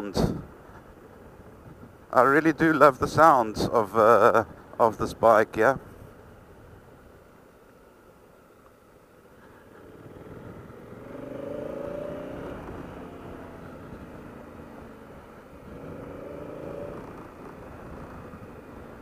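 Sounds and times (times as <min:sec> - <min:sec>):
wind and road noise: 0:00.0 - 0:19.0
motorcycle engine accelerating: 0:09.6 - 0:19.0.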